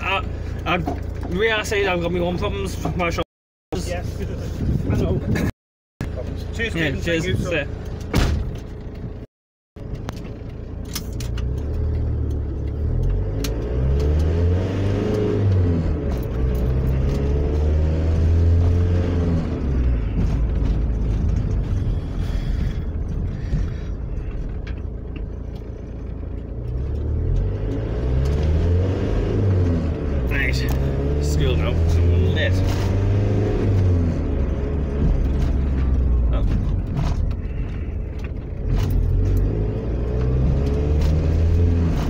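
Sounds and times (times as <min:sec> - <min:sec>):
road rumble: 0:00.0 - 0:42.0
diesel engine accelerating: 0:06.0 - 0:42.0.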